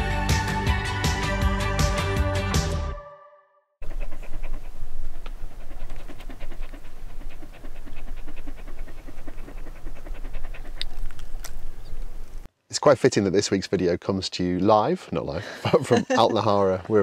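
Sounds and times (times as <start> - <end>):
dog panting: 3.8 - 12.2.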